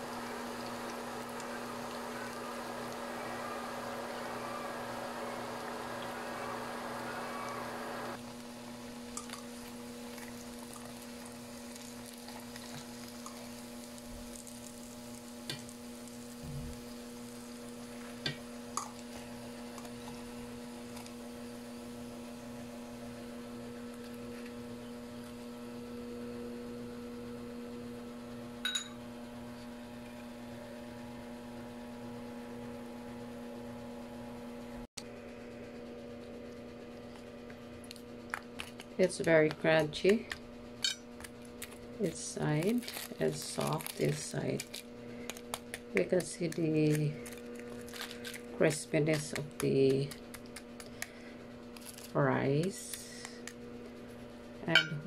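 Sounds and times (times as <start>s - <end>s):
oil sizzling in a pan: 0.0s - 25.8s
electrical hum: 0.0s - 55.0s.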